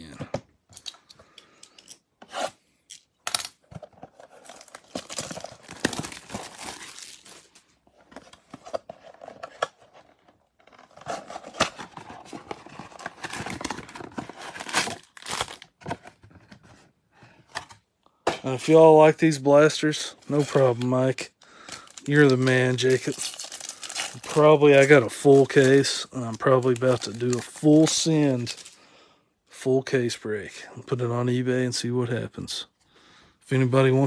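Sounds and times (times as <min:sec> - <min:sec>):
shrink wrap crinkling: 0:04.4 - 0:07.7, 0:21.6 - 0:28.8
cardboard box tearing: 0:10.8 - 0:15.6.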